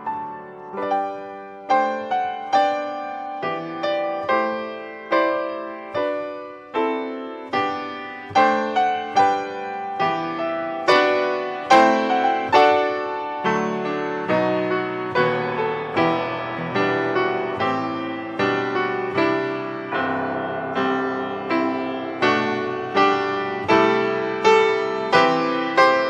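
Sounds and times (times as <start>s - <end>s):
slow solo piano chords: 0.0s - 26.0s.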